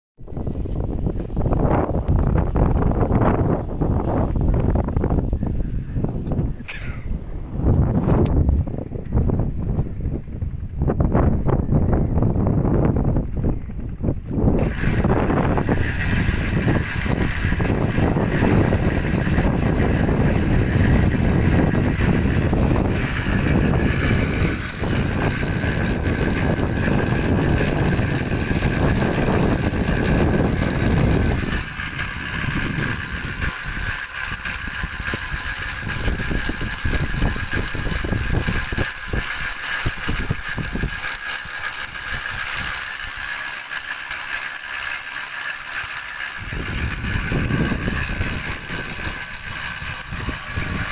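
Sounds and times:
electric motor whine: 0.2s - 10.3s, 11.1s - 50.9s.

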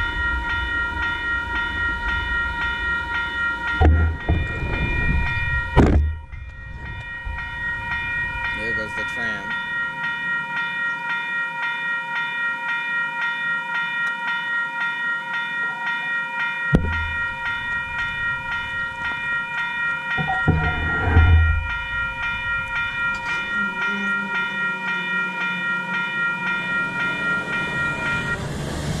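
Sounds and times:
low rumble: 0.0s - 8.5s, 20.2s - 23.7s
level crossing warning bell ringing: 0.0s - 29.0s
single thump: 3.8s - 4.5s, 5.8s - 6.2s, 16.8s - 17.3s.

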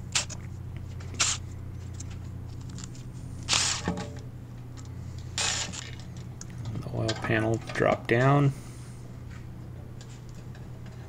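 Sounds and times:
steady low hum: 0.0s - 11.0s
power ratchet spinning bolts: 1.2s - 1.4s, 3.5s - 4.0s, 5.4s - 6.2s.

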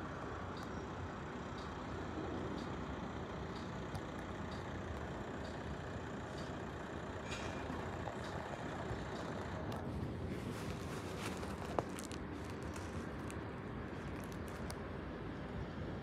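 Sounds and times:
traffic rumble: 0.0s - 16.0s
faint ticks: 0.4s - 0.8s, 1.5s - 1.8s, 3.5s - 6.6s, 7.3s - 8.5s, 9.1s - 9.8s.

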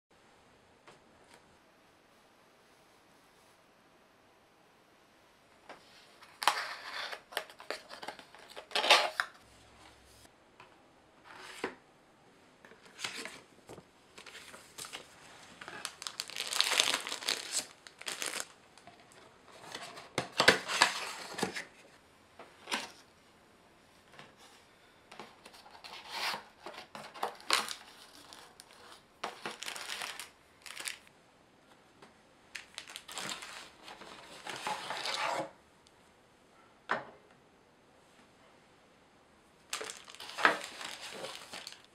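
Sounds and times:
wrapping crinkling: 14.1s - 19.2s, 26.9s - 31.1s, 32.5s - 35.2s, 39.7s - 41.9s.

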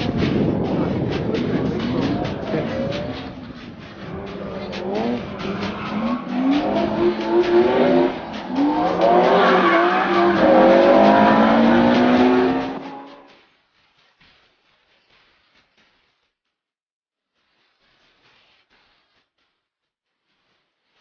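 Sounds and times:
car engines revving: 0.0s - 13.3s.

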